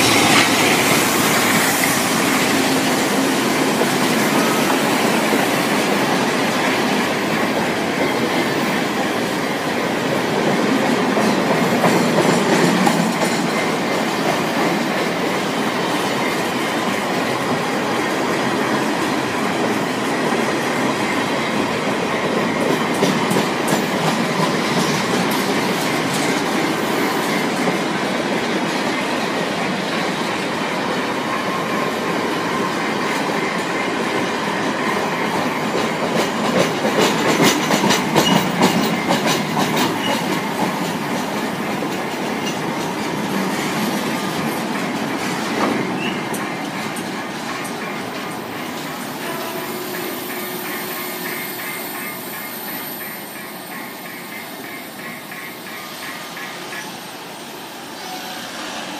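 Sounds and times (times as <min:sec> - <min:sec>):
steel wheels clattering on track: 0:21.9 - 0:27.9, 0:32.5 - 0:57.1.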